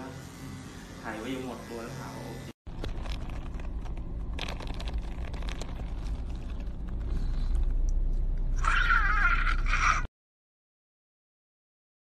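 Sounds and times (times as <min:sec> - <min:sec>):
low rumble: 0:02.7 - 0:08.7
man shrieking excitedly: 0:08.6 - 0:10.1.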